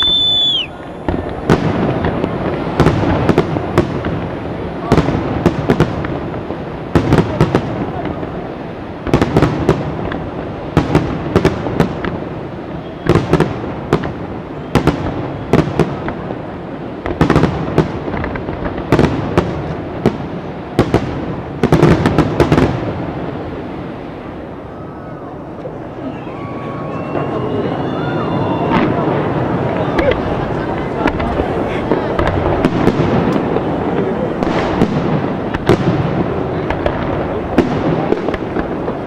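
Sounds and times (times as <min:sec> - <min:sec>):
rolling rumble: 0:25.3 - 0:39.0.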